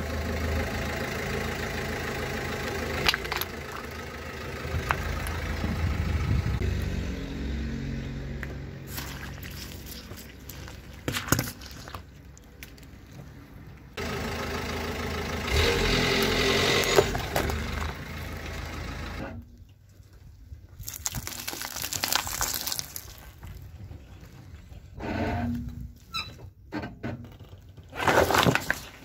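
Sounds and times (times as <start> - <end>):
tyre squashing oranges: 8.8 - 13.1
crackling foil wrappers: 20.8 - 23.6
tyre crushing cardboard box: 27.9 - 29.0.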